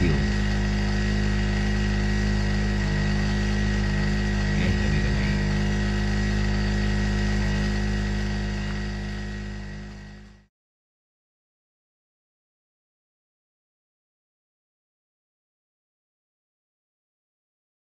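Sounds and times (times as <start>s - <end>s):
generator engine humming: 0.0s - 10.5s.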